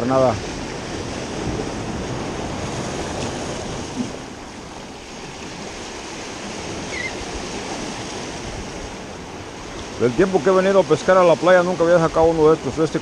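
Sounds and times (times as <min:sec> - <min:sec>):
wind on microphone: 0:00.0 - 0:10.4
ocean surf breaking over rocks: 0:00.0 - 0:13.0.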